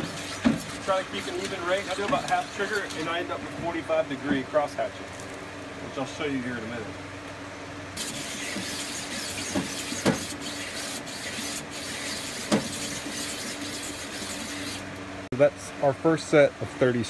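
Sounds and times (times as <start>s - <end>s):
drill spinning grinding hone: 8.0s - 14.9s.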